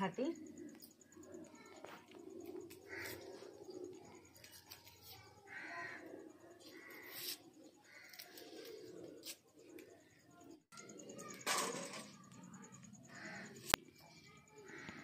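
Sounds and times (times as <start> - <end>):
bird calls: 0.0 - 11.5
garlic skin clicks and rustles: 4.0 - 5.3.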